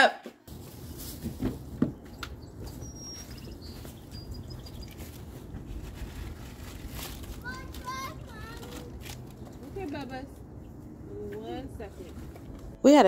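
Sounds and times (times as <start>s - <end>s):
knocks and rustles: 0.5s - 8.0s
high bird chirps: 2.0s - 5.4s.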